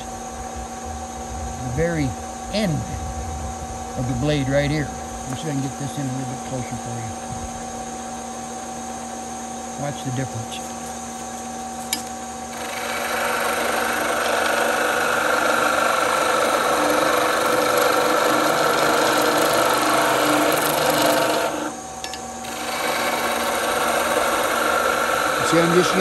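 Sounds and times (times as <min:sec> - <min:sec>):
lathe motor hum: 0:12.4 - 0:26.0
chisel scraping spinning wood: 0:12.5 - 0:21.8, 0:22.4 - 0:26.0.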